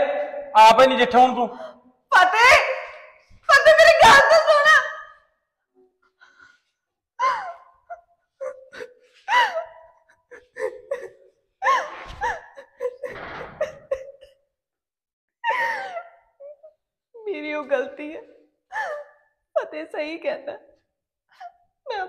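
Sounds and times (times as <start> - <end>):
woman crying and sobbing: 3.4 - 5.3, 6.2 - 14.4, 15.4 - 20.5, 21.4 - 22.0.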